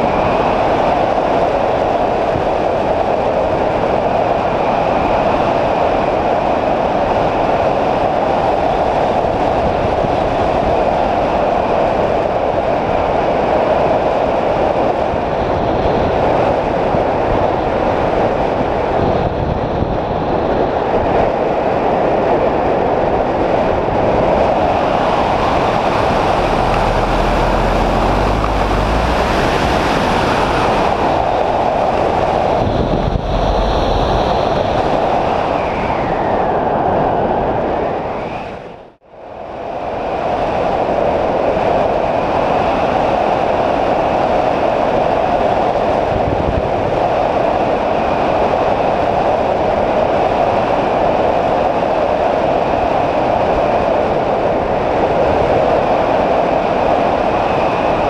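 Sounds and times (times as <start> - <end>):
wind rushing over a glider: 0.0 - 58.0
deep buffeting rumble: 23.8 - 36.0.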